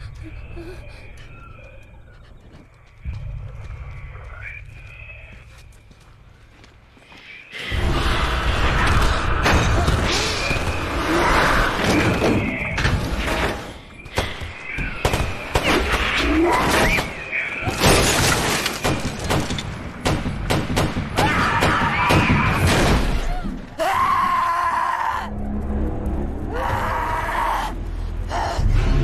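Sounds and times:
people screaming: 0:21.2 - 0:25.3, 0:26.5 - 0:28.6
dramatic music: 0:23.8 - 0:29.0.

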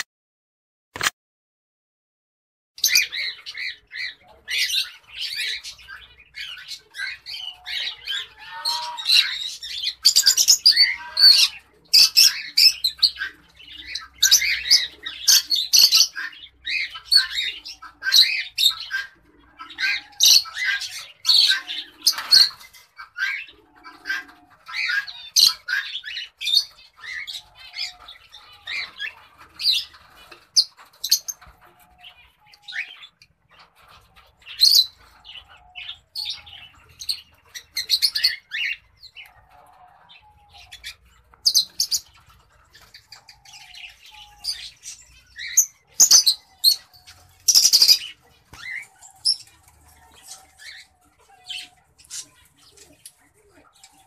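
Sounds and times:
cockatiels chirping and squawking: 0:02.8 - 0:54.0.

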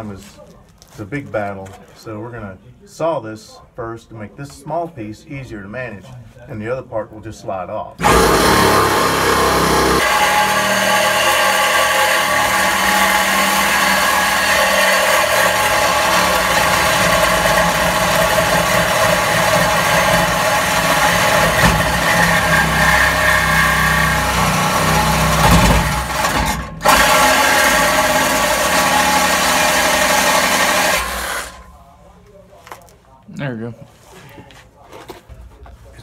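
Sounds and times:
reciprocating saw cutting steel pipe: 0:08.0 - 0:31.6.

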